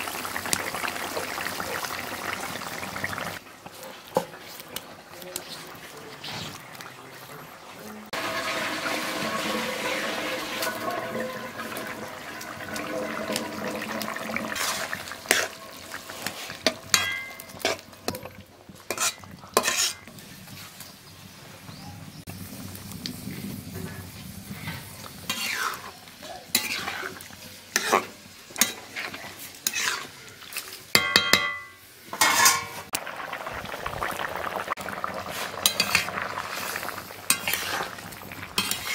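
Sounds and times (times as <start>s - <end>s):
curry sizzling in a wok: 0.0s - 6.9s, 7.5s - 38.9s
metal spatula clanking on wok: 16.6s - 20.1s, 30.9s - 32.8s.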